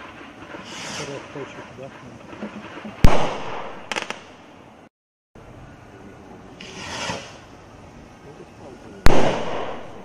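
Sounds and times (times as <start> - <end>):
firework rocket bang: 0.0 - 1.4, 2.4 - 4.3, 6.6 - 7.4, 9.0 - 10.0
short hiss: 0.6 - 1.4, 6.6 - 7.4
crackling pops: 2.3 - 4.3, 9.0 - 10.0.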